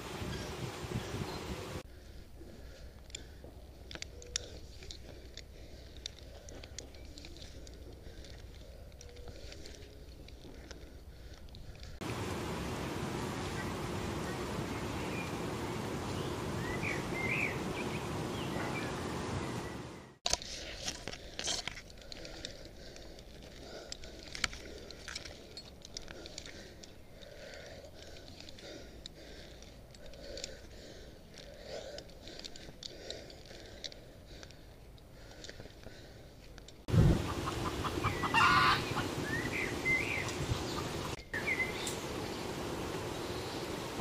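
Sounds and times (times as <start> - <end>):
low wind rumble: 0.0 - 20.2, 36.2 - 44.0
leaves rustling: 0.0 - 31.0, 36.9 - 44.0
light clicks of rope gear: 1.8 - 12.0, 20.2 - 36.9
wind rushing: 36.9 - 41.1
chickens clucking: 37.0 - 41.2
chicken squawk: 37.2 - 39.1.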